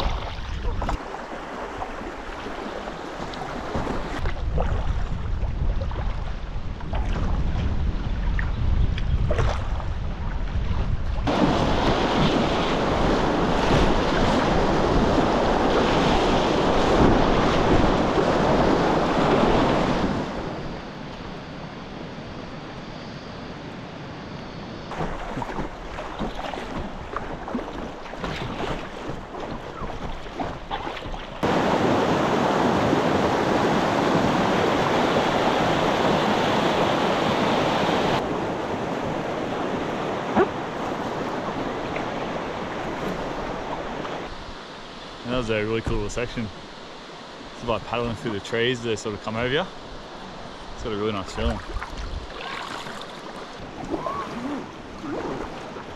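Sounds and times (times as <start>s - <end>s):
small water splashes: 0.0s - 7.4s, 9.2s - 9.9s, 24.9s - 36.8s, 51.2s - 55.9s
wind buffeting microphone: 3.6s - 21.0s, 49.5s - 55.9s
river water rushing over rocks: 31.0s - 45.2s.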